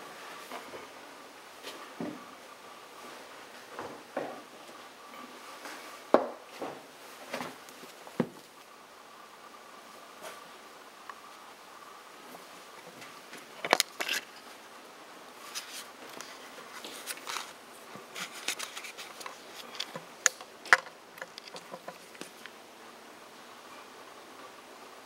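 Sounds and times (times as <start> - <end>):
rustling: 15.3 - 22.6
knocks clicks and scrapes: 18.2 - 22.5.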